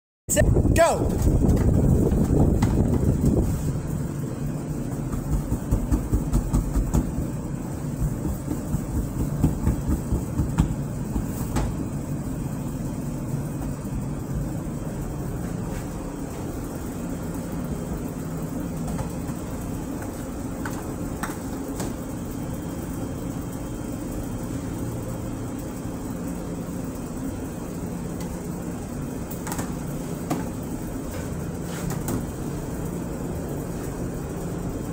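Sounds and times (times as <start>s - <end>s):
low hum of kitchen equipment: 0.3s - 34.9s
hands slapping dough: 5.0s - 7.2s, 8.0s - 11.8s.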